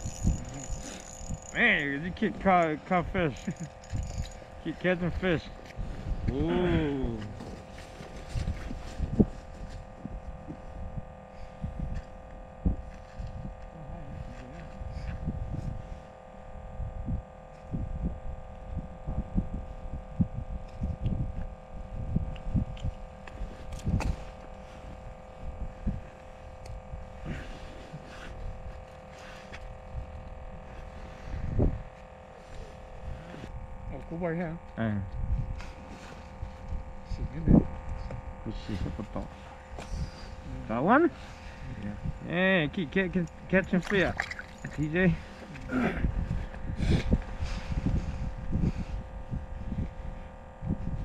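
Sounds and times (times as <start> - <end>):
wind buffeting microphone: 0.0 - 27.5, 29.7 - 31.9, 35.1 - 35.8, 42.9 - 51.0
steady hum: 0.0 - 51.0.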